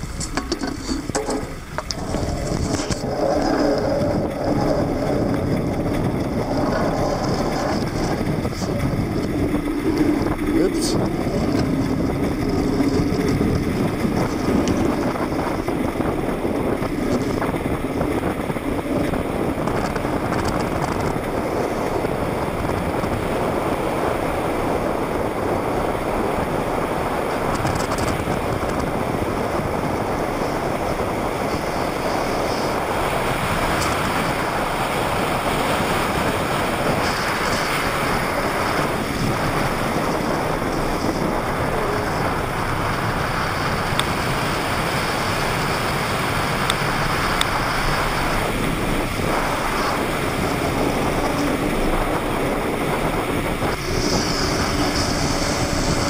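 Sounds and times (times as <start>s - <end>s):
low hum: 0.0s - 25.4s, 45.3s - 56.0s
plastic wheels rolling on asphalt: 0.0s - 56.0s
wind rushing: 0.0s - 56.0s.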